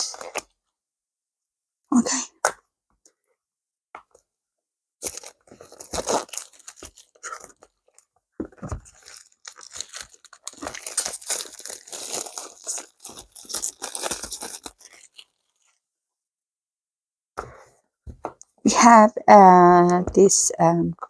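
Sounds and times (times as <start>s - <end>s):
plastic wrap crinkling and tearing: 5.0s - 15.8s.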